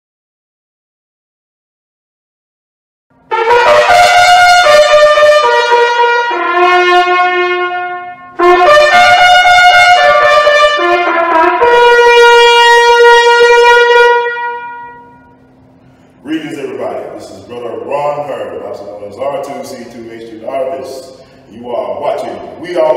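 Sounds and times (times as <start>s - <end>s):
solo trumpet melody: 3.2s - 15.8s.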